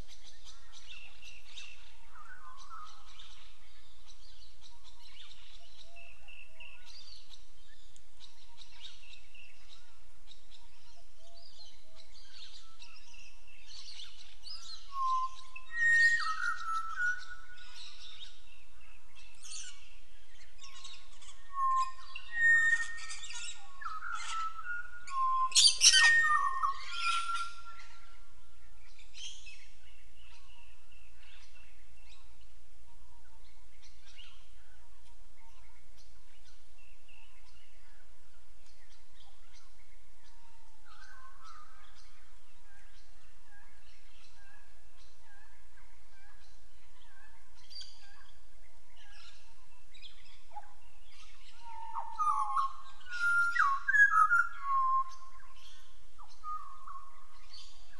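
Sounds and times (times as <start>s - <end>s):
birds whistling fluting notes: 51.6s - 55.3s.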